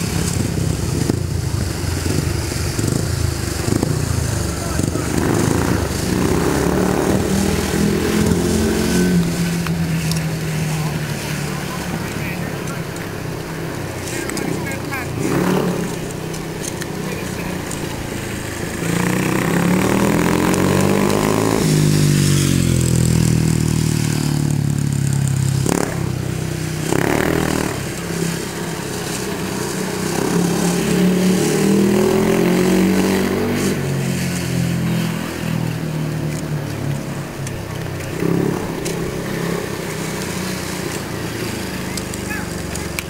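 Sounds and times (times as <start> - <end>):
motorcycle engine revving: 0.0 - 43.0.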